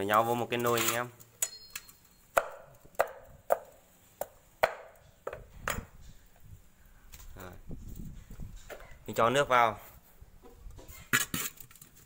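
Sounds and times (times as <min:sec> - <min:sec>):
knife chopping on wooden board: 0:02.4 - 0:05.8.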